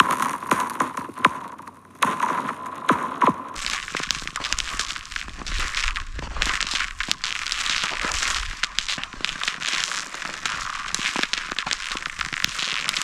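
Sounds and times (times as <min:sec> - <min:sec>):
ice crackling: 0:00.0 - 0:13.0
ice skates scraping on ice: 0:03.6 - 0:13.0.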